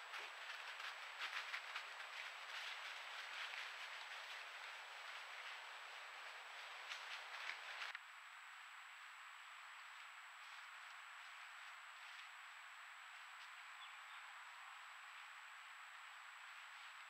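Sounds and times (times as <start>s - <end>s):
animal feet rustling dry leaves: 0.0s - 8.0s
steady hiss: 0.0s - 17.0s.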